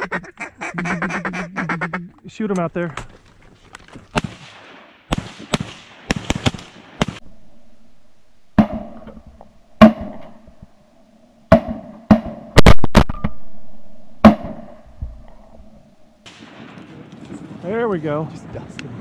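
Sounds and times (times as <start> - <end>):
shotgun shots with echo: 4.2 - 7.3, 8.6 - 9.2, 9.8 - 10.4, 14.2 - 14.9.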